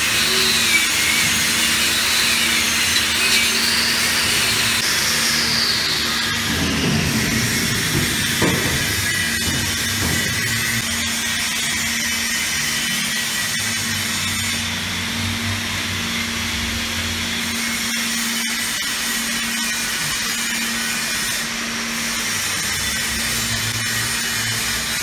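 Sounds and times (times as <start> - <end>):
workshop machinery humming: 0.0 - 17.4.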